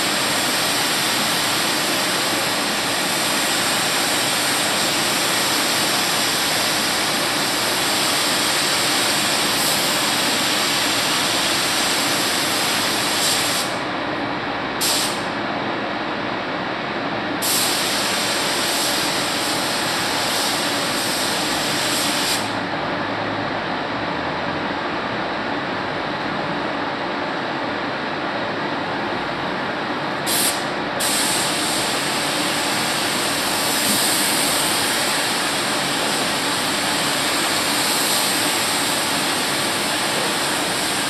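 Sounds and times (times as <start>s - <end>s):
fan-like air noise: 0.0s - 41.0s
paint spray gun hissing: 17.4s - 22.6s, 30.3s - 41.0s.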